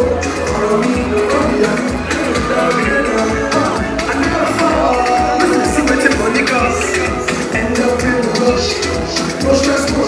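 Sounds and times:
afrobeats music over pa: 0.0s - 10.0s.

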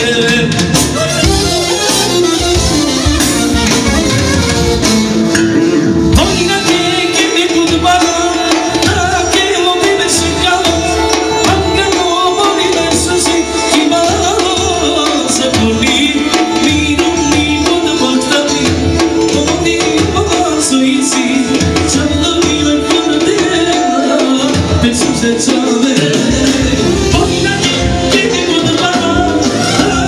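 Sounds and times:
percussion and bass beat: 0.0s - 30.0s
saxophone melody: 0.7s - 14.8s, 26.2s - 30.0s.

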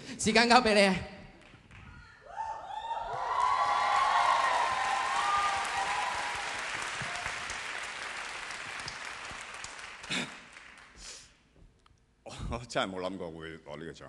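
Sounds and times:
audience applauding: 2.8s - 11.1s.

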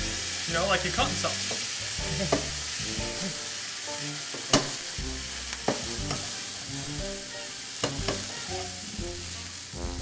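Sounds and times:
chicken sizzling in a frying pan: 0.0s - 10.0s
utensils clinking and scraping on pan: 1.4s - 2.8s, 4.2s - 6.9s, 7.6s - 8.8s.

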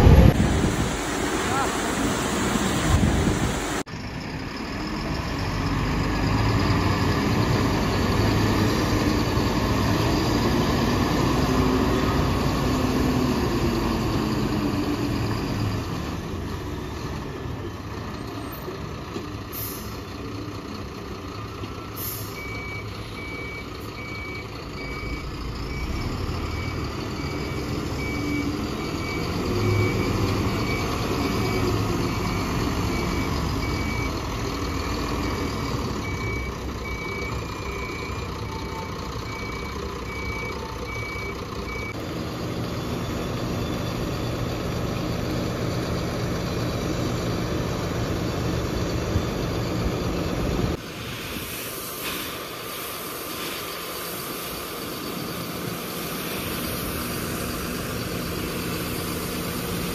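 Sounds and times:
heavy diesel machinery running: 0.0s - 59.9s
reversing alarm beeping: 21.8s - 47.3s
short hisses: 50.9s - 54.6s.

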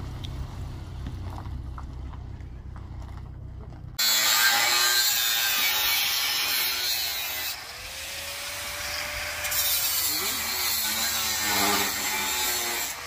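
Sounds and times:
low car engine rumble: 0.0s - 4.0s
metalworking power tool hissing: 4.0s - 13.0s.

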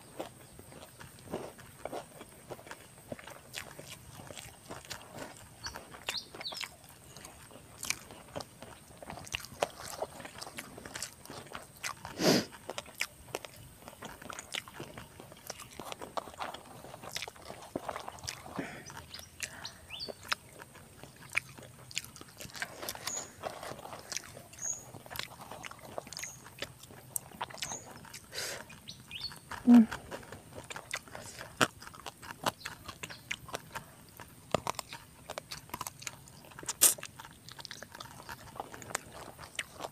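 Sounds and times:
chewing crunchy crackers: 0.0s - 39.9s
bird chirping: 5.6s - 6.8s, 17.8s - 20.4s, 22.4s - 29.9s, 32.6s - 33.4s.

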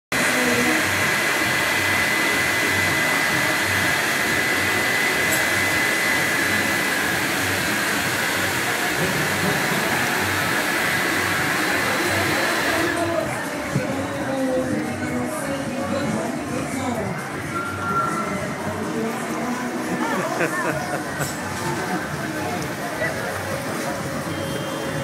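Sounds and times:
electric air blower hissing: 0.2s - 13.2s.

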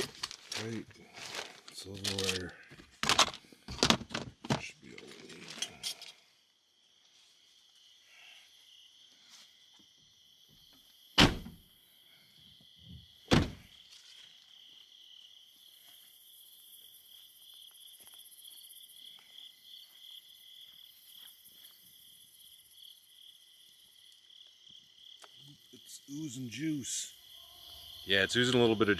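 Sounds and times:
crickets chirping: 0.0s - 28.9s
truck door slamming: 11.2s - 11.6s, 13.3s - 13.6s.

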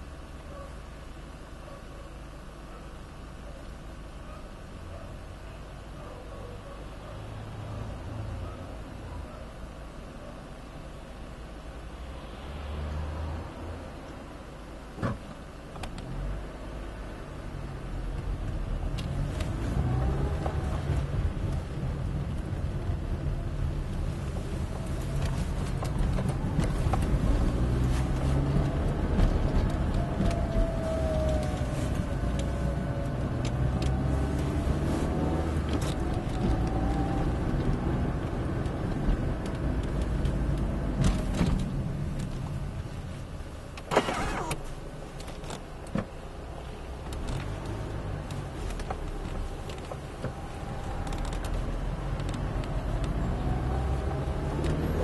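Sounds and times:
road noise inside car: 0.0s - 55.0s
car engine rising and falling: 43.8s - 46.2s, 47.0s - 55.0s.

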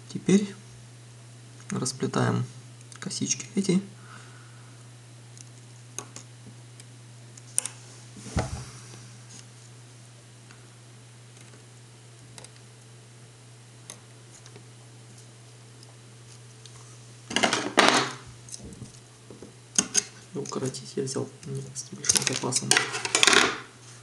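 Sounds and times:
steady low hum: 0.0s - 24.0s
wires being handled clicking: 5.3s - 7.8s, 12.2s - 12.7s, 13.8s - 17.5s, 19.7s - 23.5s.

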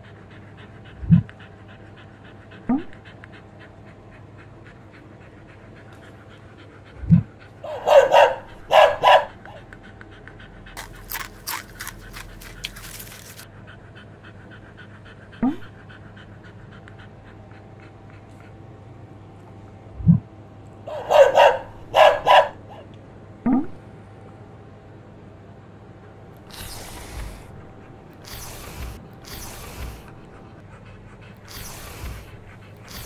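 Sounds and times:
dog panting: 0.0s - 19.8s, 20.9s - 22.9s, 26.0s - 33.0s
short noisy bursts: 26.4s - 30.5s, 31.4s - 33.0s.

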